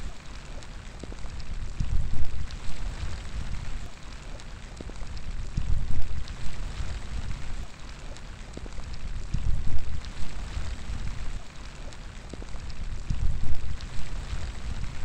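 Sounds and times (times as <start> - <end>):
wind gusts rumbling: 0.0 - 3.9
rain drop ticks: 0.0 - 15.0
rain hissing: 0.0 - 15.0.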